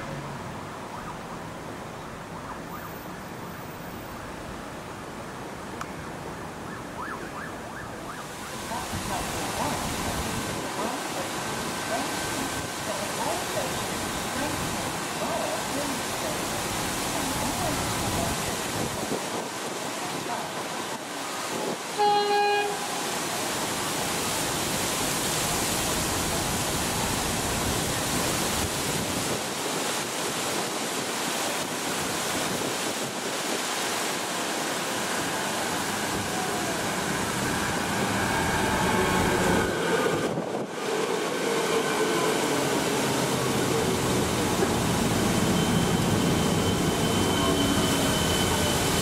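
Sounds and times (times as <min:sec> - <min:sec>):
electric train running on rails: 0:08.7 - 0:28.6, 0:32.6 - 0:49.0
train horn toot: 0:21.9 - 0:23.2.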